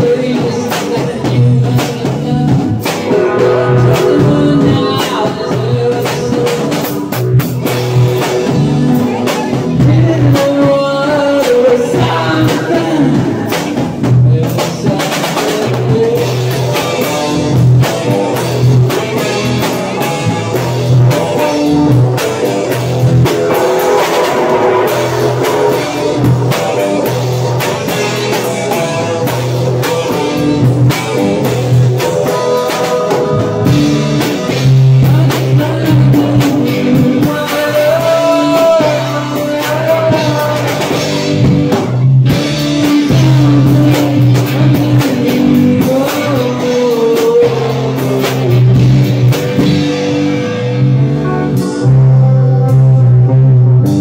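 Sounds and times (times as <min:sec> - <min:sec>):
man singing: 0:00.0 - 0:07.2, 0:08.8 - 0:17.2, 0:32.1 - 0:41.5, 0:42.7 - 0:48.6
distorted electric guitars: 0:00.0 - 0:54.0
drum kit: 0:00.0 - 0:54.0.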